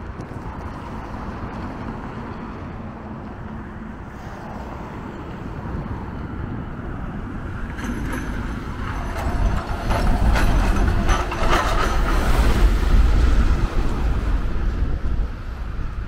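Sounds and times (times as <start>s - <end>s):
rattling clanks: 7.6s - 12.7s.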